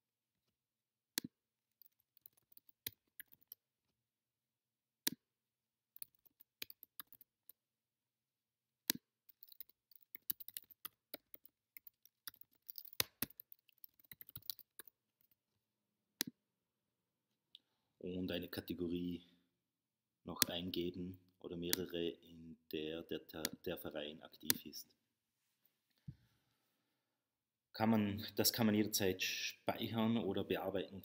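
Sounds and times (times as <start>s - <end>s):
keyboard typing: 1.8s - 3.6s, 6.0s - 7.6s, 8.9s - 15.4s.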